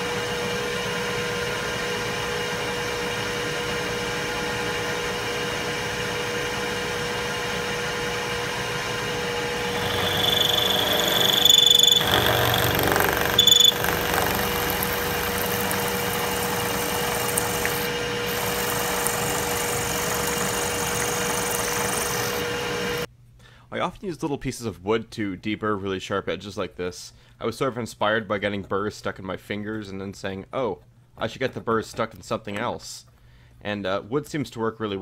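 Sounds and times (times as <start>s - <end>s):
milling machine spindle running: 9.5s - 23.1s
high-pitched cutter squeal: 9.6s - 22.4s.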